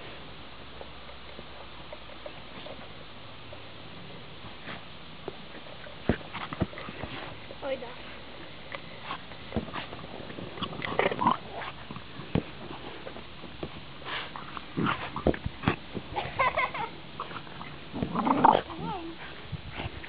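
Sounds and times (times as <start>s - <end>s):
dogs vocalizing: 0.8s - 3.7s, 17.2s - 20.0s.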